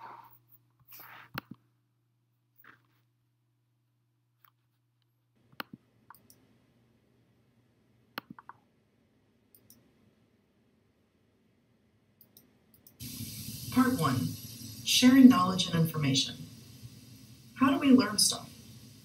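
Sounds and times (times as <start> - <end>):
computer mouse clicks: 0.8 - 1.6, 5.5 - 6.4, 8.2 - 8.7, 9.5 - 9.9, 12.2 - 13.0.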